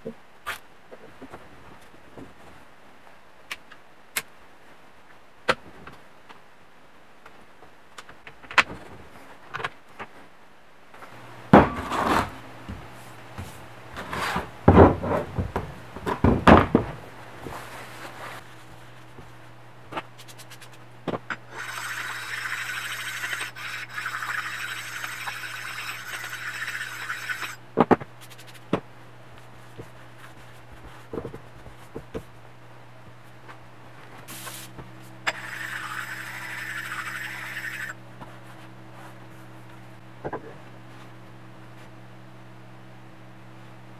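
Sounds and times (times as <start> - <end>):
low machine hum: 10.6 - 43.9.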